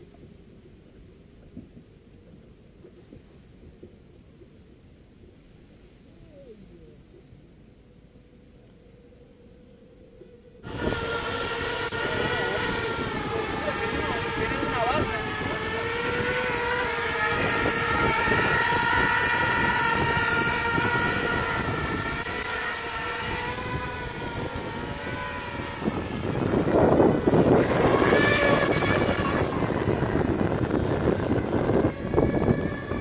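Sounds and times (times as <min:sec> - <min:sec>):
drone motors whining: 0:09.1 - 0:33.0
rushing noise: 0:10.6 - 0:33.0.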